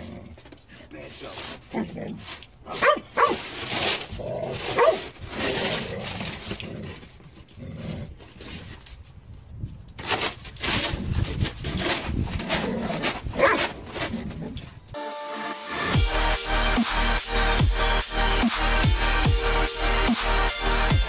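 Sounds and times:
snow shovel scraping snow: 0:01.0 - 0:07.0.

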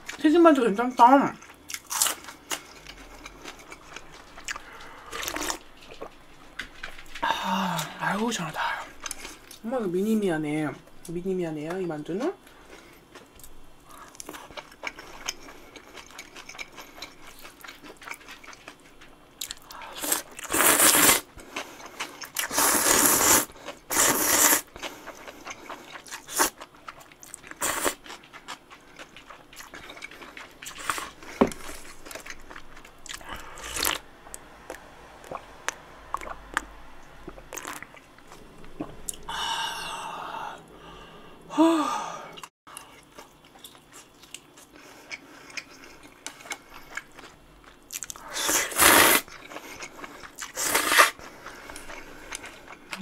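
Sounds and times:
wet chewing: 0:01.4 - 0:07.2, 0:12.7 - 0:39.3, 0:42.4 - 0:53.0
person slurping noodles: 0:20.0 - 0:21.3, 0:22.4 - 0:24.7, 0:48.3 - 0:49.3, 0:50.5 - 0:51.2.

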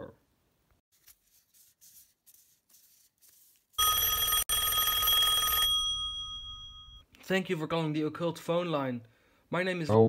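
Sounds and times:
telephone ringing: 0:03.8 - 0:07.0.

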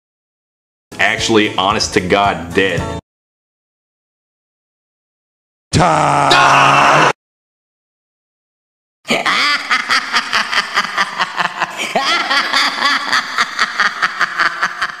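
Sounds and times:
stuttering chopped laugh: 0:09.1 - 0:15.0.

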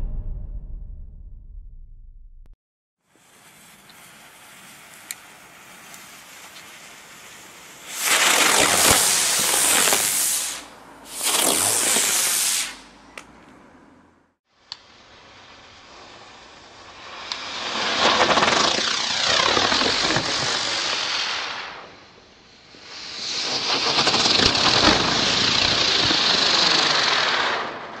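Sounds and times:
spinning firework whirling and hissing: 0:03.1 - 0:12.9, 0:14.6 - 0:28.0.

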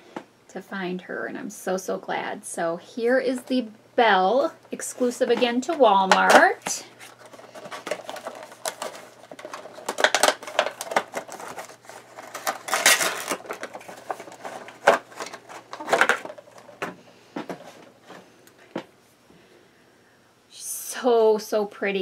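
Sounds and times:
cardboard and plastic crinkling: 0:05.0 - 0:18.9
packaging clicks: 0:07.1 - 0:17.0.

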